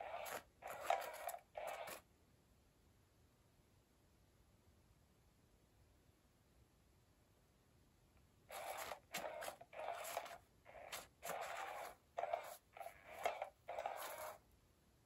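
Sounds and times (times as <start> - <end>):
cat toy wand scraping rustle: 0.0 - 2.0, 8.5 - 14.4.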